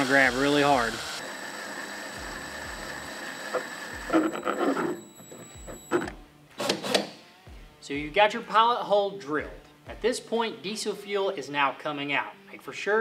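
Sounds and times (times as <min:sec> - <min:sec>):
drill whining through plastic: 0:00.0 - 0:07.1.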